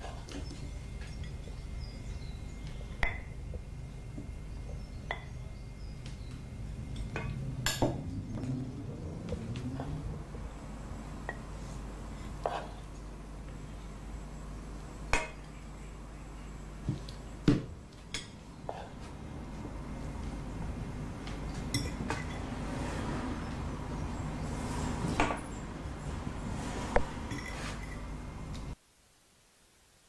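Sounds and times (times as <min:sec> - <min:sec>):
low steady hum: 0:00.0 - 0:30.0
plates and cutlery clinking: 0:27.2 - 0:28.1.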